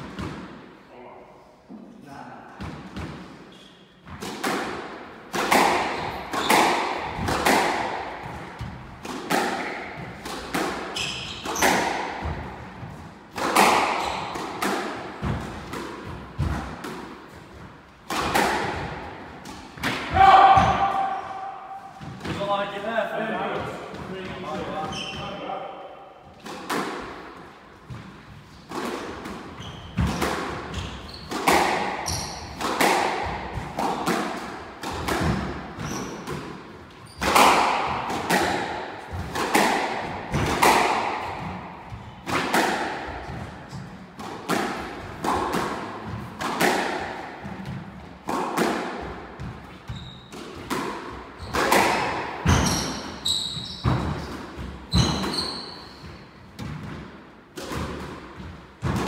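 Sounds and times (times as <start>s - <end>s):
squash ball hitting racquets and walls: 0.0s - 0.8s, 2.6s - 59.0s
shoe squeaks: 3.5s - 4.0s, 10.9s - 11.7s, 13.9s - 14.4s, 24.6s - 25.5s, 29.5s - 30.1s, 30.7s - 31.4s, 32.0s - 32.6s, 35.8s - 36.3s, 37.0s - 37.4s, 49.9s - 50.4s, 51.4s - 51.7s, 52.5s - 54.3s, 54.9s - 56.3s.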